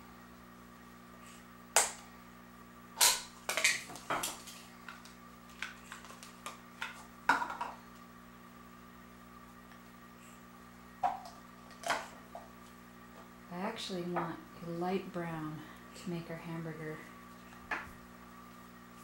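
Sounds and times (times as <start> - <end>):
steady hum: 0.0 - 19.0.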